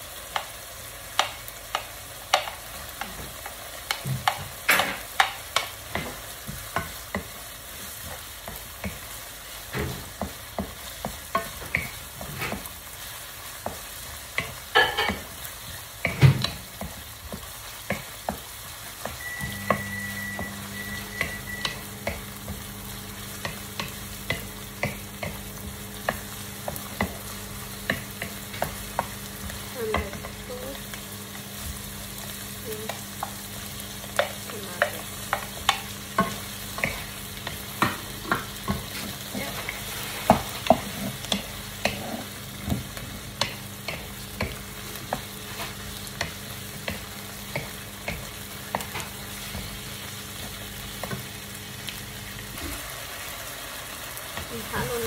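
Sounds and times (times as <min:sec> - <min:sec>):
food sizzling in a wok: 0:00.0 - 0:55.0
wooden spatula scraping a pan: 0:45.0 - 0:47.0.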